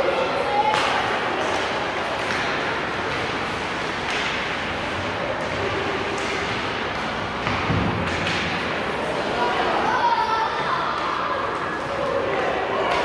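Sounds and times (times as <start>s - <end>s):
large hall din: 0.0s - 13.0s.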